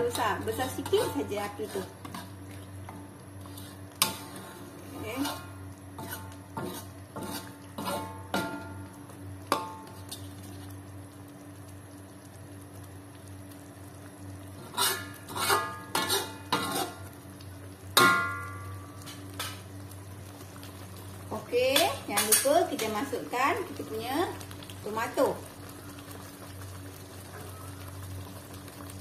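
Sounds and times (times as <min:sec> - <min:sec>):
spatula scraping a wok: 0:00.0 - 0:02.5, 0:03.3 - 0:08.7, 0:14.6 - 0:17.1
ringing knock on a wok: 0:18.0 - 0:18.6.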